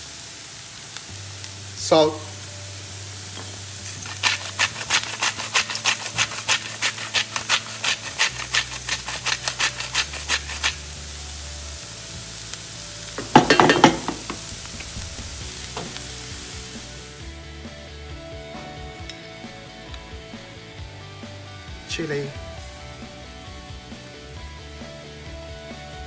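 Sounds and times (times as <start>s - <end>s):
onions sizzling in a pan: 0.0s - 17.4s
salt mill grinding: 3.4s - 11.0s, 13.2s - 16.7s.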